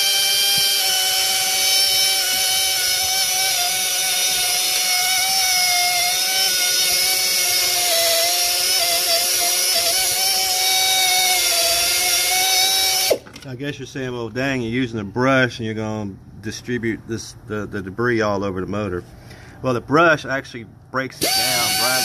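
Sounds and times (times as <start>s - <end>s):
air rotary tool whining: 0.0s - 13.4s, 21.2s - 22.0s.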